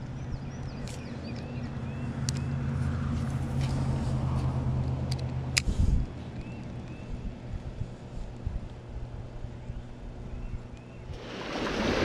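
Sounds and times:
small birds chirping: 0.0 - 3.9, 6.0 - 11.2
steady low hum: 0.0 - 12.0.

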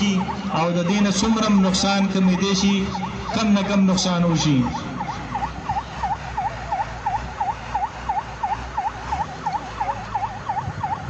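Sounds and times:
emergency siren warbling: 0.0 - 11.0.

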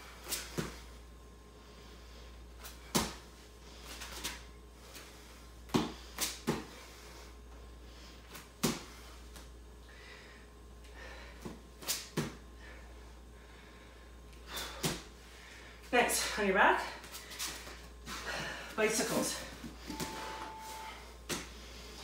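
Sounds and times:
hands and feet thudding on mats: 5.7 - 6.8, 8.3 - 9.5.

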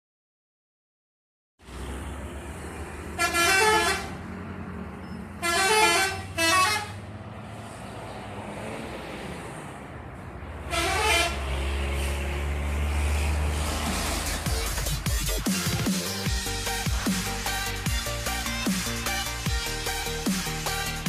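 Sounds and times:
bus engines rumbling: 1.6 - 21.0
street traffic: 1.6 - 21.0
musical bus horns tooting: 3.0 - 4.4, 5.0 - 7.1, 10.6 - 21.0.

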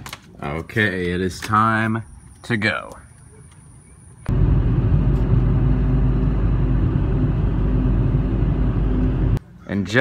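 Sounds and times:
car cabin road and engine drone: 4.2 - 9.4.

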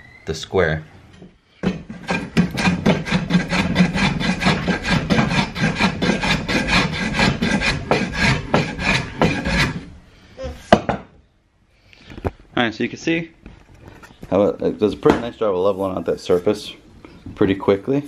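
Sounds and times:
sharp wooden knock: 1.6 - 3.1
hand plane shaving wood: 1.6 - 9.9.

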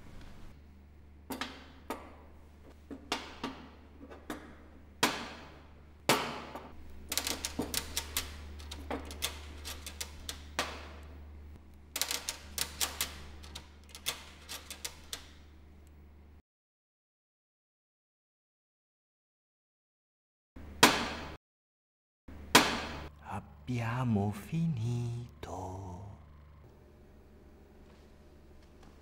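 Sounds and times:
steady low hum: 22.3 - 29.0.

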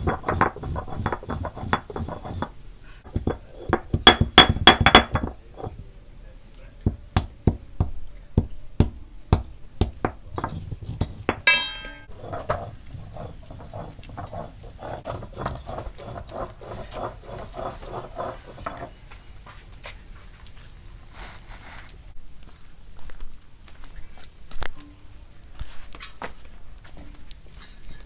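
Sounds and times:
stone roller knocking: 0.0 - 2.5, 3.1 - 5.7, 9.8 - 19.0
stone roller grinding paste: 0.0 - 5.8, 12.1 - 19.0.

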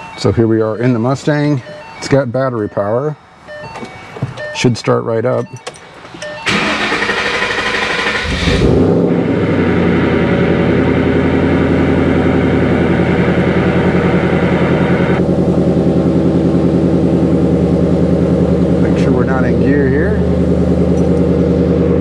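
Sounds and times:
car engine starting and idling: 5.4 - 22.0.

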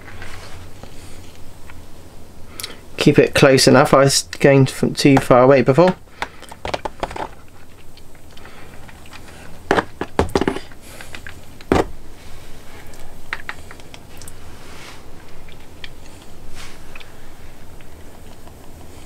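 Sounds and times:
applicator tapping and rattling: 6.2 - 7.4, 8.8 - 11.9
sharp knocks: 9.7 - 10.7, 11.7 - 12.0.

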